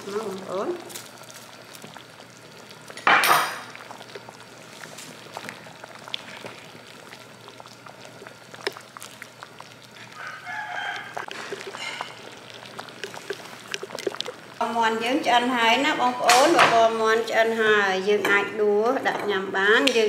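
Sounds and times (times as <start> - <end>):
porridge bubbling in a pot: 0.0 - 20.0
rooster crowing: 10.1 - 11.3.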